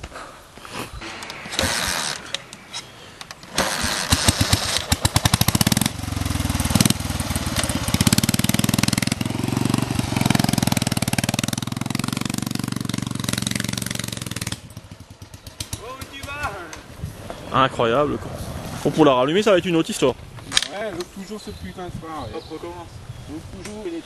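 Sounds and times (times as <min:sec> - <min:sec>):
motorcycle engine kick-started: 0:03.4 - 0:16.1.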